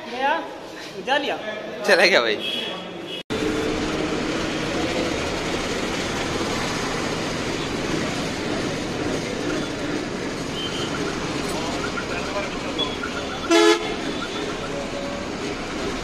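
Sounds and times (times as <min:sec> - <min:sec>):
low engine drone: 0:03.3 - 0:16.0
vehicle road noise rumble: 0:03.3 - 0:16.0.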